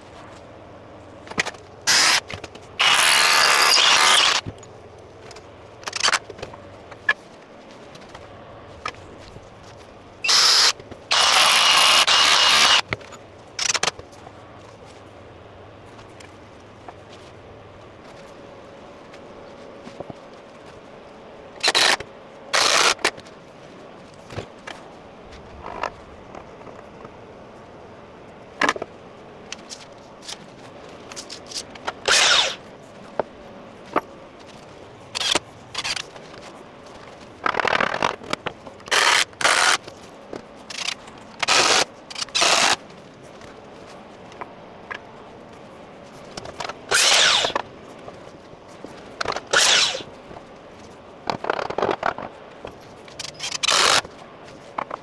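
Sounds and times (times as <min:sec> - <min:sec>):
cordless drill boring: 0:01.9 - 0:02.2, 0:02.8 - 0:04.4, 0:10.3 - 0:12.8, 0:32.1 - 0:32.6, 0:46.9 - 0:47.6, 0:49.5 - 0:50.0.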